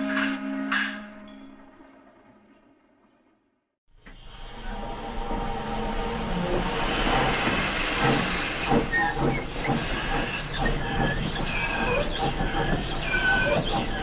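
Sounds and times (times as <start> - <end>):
model train running: 4.0 - 14.0
steam hiss: 4.0 - 14.0.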